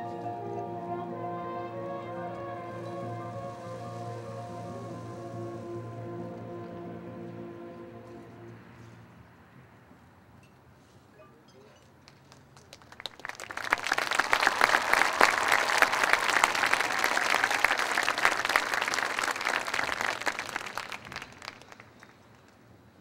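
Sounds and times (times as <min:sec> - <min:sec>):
crowd applauding: 0:12.1 - 0:22.6.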